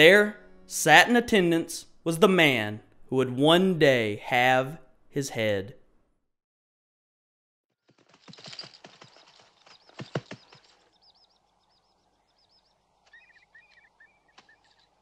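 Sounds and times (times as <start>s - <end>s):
horse hooves clopping: 7.9s - 15.0s
birds chirping: 8.1s - 15.0s.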